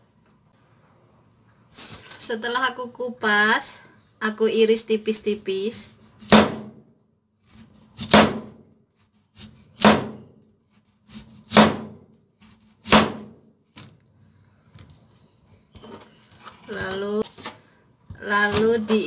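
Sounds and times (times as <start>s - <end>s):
knife chopping on plastic board: 6.2s - 6.8s, 7.6s - 8.6s, 9.4s - 10.3s, 11.1s - 13.9s.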